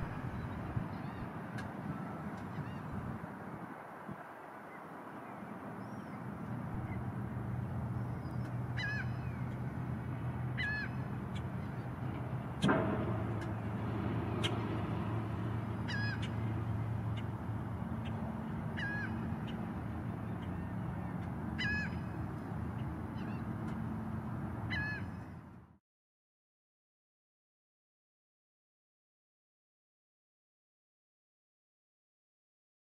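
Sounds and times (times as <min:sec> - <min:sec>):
low motor hum: 0:05.7 - 0:25.7
sharp knock: 0:12.6 - 0:15.9
osprey whistled chirps: 0:15.4 - 0:16.4.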